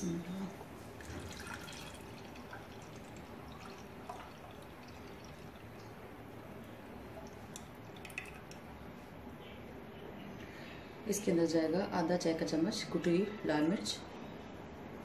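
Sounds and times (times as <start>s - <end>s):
thick liquid pouring and dripping: 1.0s - 8.6s.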